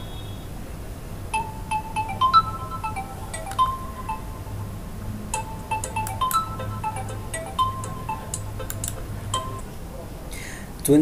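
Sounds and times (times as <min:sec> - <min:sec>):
low steady hum: 0:00.0 - 0:10.8
chime-like tune: 0:01.4 - 0:04.7, 0:05.4 - 0:08.7, 0:09.3 - 0:09.7.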